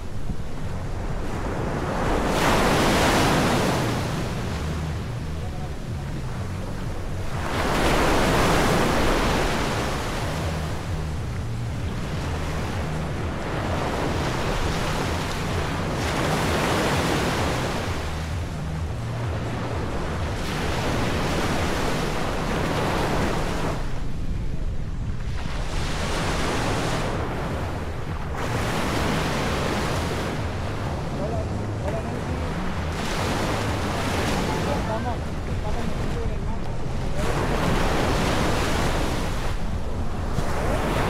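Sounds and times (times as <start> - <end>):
waves breaking on a beach: 0.0 - 41.0
wind rumbling on microphone: 0.0 - 41.0.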